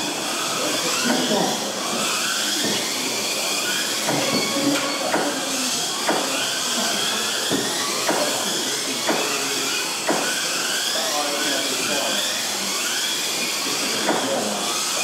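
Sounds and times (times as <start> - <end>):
small electric motors whining: 0.0 - 15.0
sharp knocks: 10.0 - 10.3.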